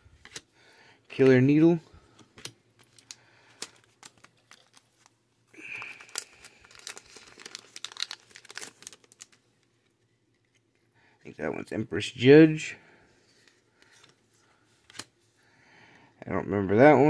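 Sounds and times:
foil wrapper crinkling: 0:02.8 - 0:10.6.

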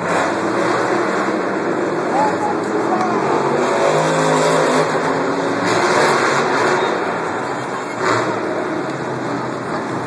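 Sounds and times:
truck engines revving: 0:00.0 - 0:10.0.

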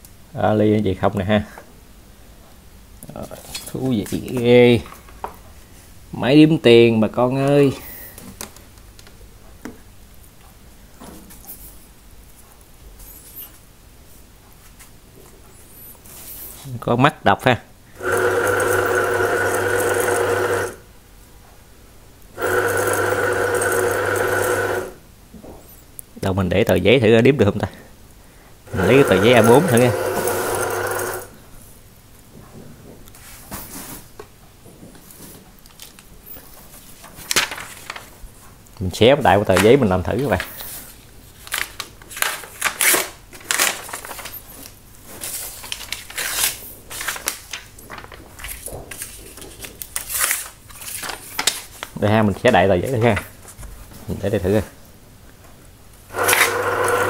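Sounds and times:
counting machine whirring hum: 0:17.9 - 0:20.9, 0:22.4 - 0:25.0, 0:28.7 - 0:31.4, 0:56.1 - 0:57.0
paper tearing: 0:41.4 - 0:44.4, 0:45.2 - 0:47.6, 0:50.0 - 0:51.7.

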